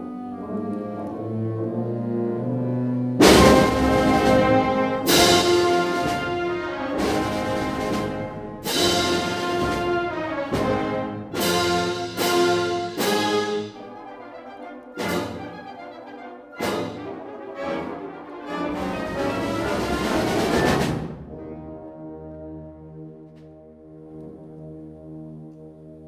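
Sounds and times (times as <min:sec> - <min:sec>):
concert band playing: 0:03.2 - 0:13.8.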